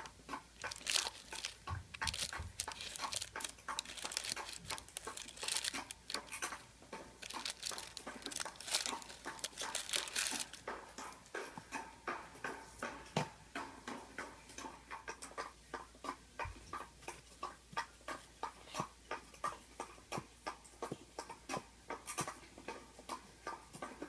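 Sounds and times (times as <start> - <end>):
light taps on tissue paper: 0.0 - 11.2
tissue paper crackle: 0.6 - 6.4, 7.2 - 10.6.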